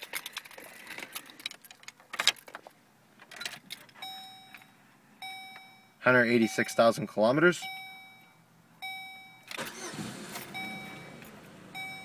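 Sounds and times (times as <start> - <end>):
car keys jangling: 0.0 - 4.7
dashboard warning chime: 4.0 - 12.0.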